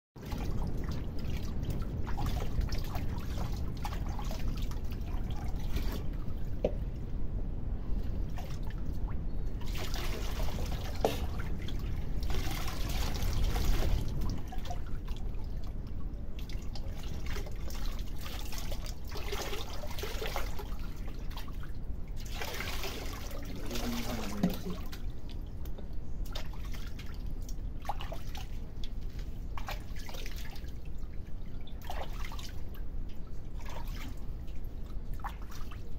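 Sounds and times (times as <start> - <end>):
water splashing in steel basin: 9.6 - 15.6, 16.4 - 25.1, 29.4 - 32.8.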